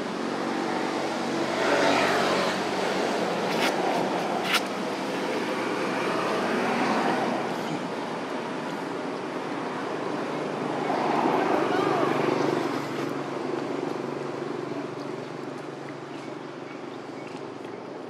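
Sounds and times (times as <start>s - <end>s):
vehicle engine humming: 0.0s - 10.8s.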